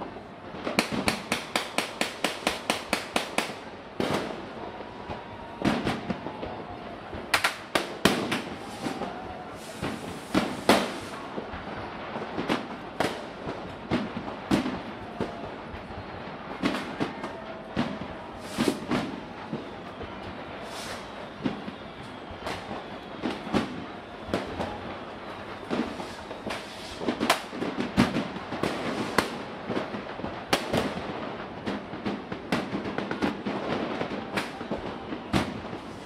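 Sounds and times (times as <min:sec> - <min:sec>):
fireworks exploding: 0:00.0 - 0:36.0.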